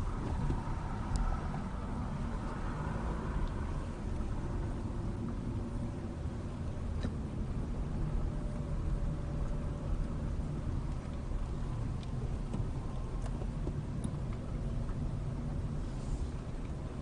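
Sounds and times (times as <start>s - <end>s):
car engine and tyres rumbling: 0.0s - 17.0s
faint clicks and ticks: 10.8s - 15.7s.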